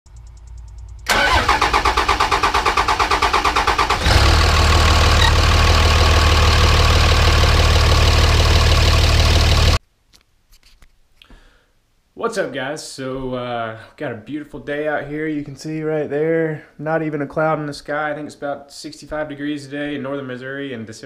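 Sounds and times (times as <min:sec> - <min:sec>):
diesel engine idling: 0:01.0 - 0:09.8
diesel engine starter cranking: 0:01.0 - 0:09.8.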